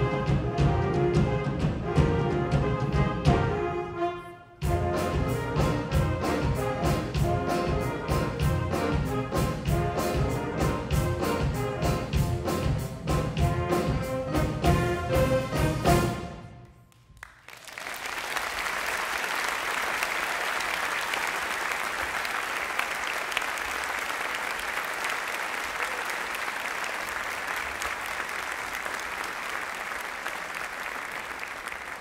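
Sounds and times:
band chord with saxophones: 0.0 - 16.6
audience applause: 16.9 - 32.0.

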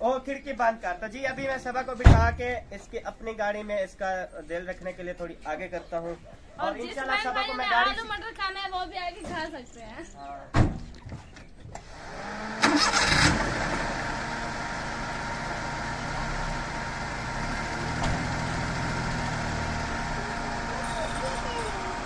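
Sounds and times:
car engine starting and idling: 11.8 - 22.0.

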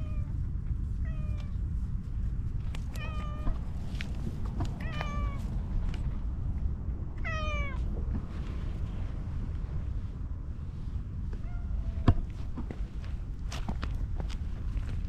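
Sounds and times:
cat meowing: 3.0 - 3.6, 4.8 - 5.5, 7.2 - 7.8.

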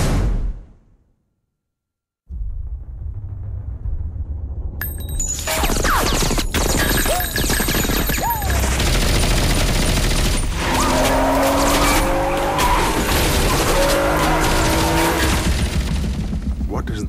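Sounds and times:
automatic gunfire: 6.0 - 10.6
car engine revving: 10.2 - 16.7.

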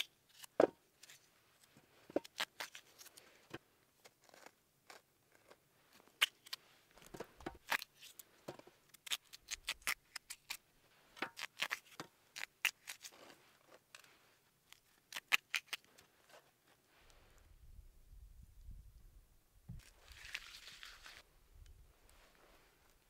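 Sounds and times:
knife cutting raw potatoes: 2.0 - 14.1, 14.7 - 16.5.

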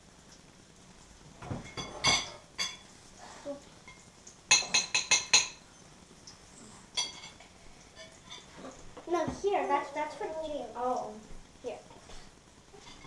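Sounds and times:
forks clinking against plates: 3.9 - 5.6, 7.0 - 7.4.

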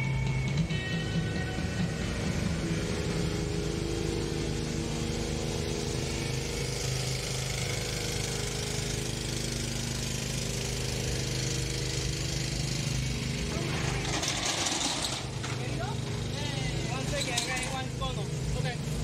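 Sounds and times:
engine running steadily: 0.0 - 19.0.

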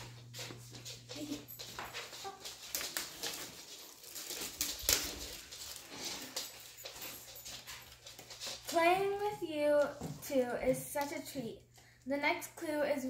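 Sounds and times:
plastic bag crinkling: 2.0 - 8.8.

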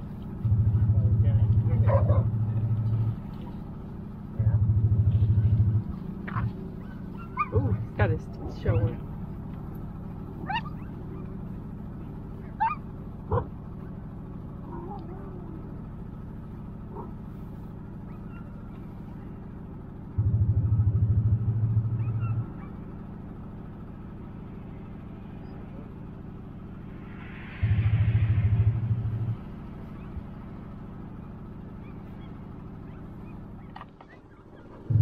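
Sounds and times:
vehicle engine running: 0.0 - 35.0
dogs whining and yelping: 1.8 - 3.1, 5.4 - 8.0, 8.6 - 9.1, 10.2 - 13.6, 14.6 - 15.8, 16.9 - 17.2, 17.9 - 19.4, 21.9 - 22.9, 29.8 - 35.0.

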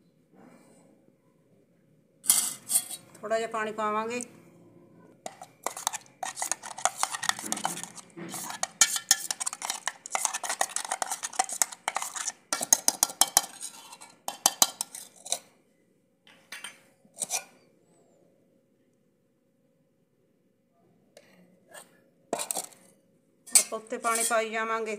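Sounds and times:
metal spoon scraping jar: 2.2 - 3.2, 5.2 - 15.5, 17.1 - 17.6, 21.7 - 22.9, 23.5 - 24.5
spoon clinking on metal: 5.3 - 15.4.

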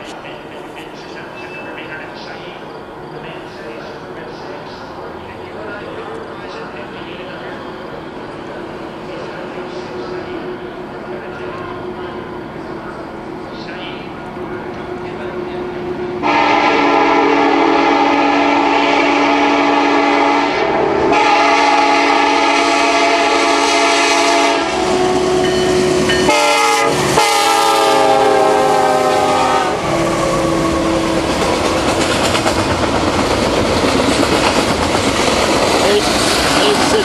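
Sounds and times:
locomotive air horn blasts: 16.2 - 31.1
train wheels rumbling and clacking: 20.9 - 37.0.

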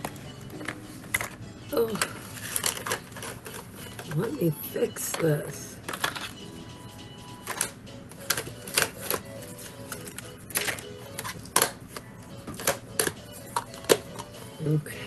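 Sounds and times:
makeup cases clicking and knocking: 0.0 - 4.2, 5.1 - 6.4, 7.4 - 9.3, 9.9 - 14.4.

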